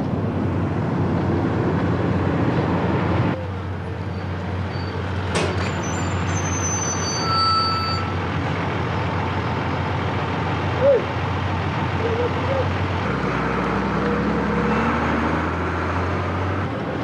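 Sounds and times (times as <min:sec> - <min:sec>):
short loud squeak: 0:04.1 - 0:08.2
thin high squealing: 0:05.6 - 0:08.2
diesel truck engine running: 0:08.0 - 0:17.0.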